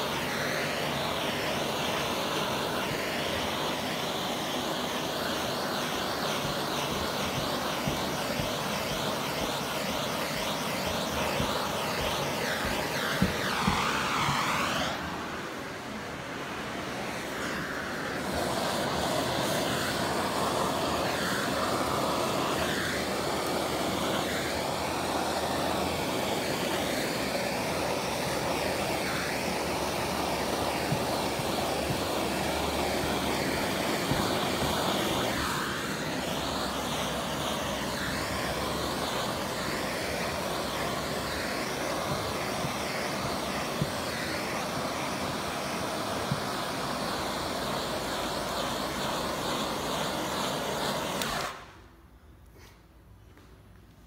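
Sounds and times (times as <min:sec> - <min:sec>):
gas torch flame burning: 0:00.0 - 0:52.6.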